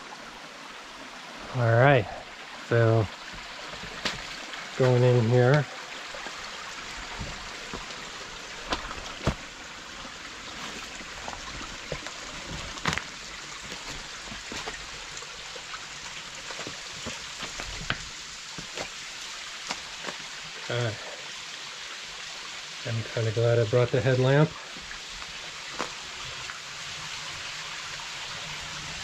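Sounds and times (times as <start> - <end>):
creek trickling over rocks: 0.0 - 29.0
footsteps on slate and sticks: 3.2 - 4.4, 6.2 - 9.6, 10.5 - 15.2, 16.4 - 19.0, 19.6 - 20.3, 24.8 - 26.0.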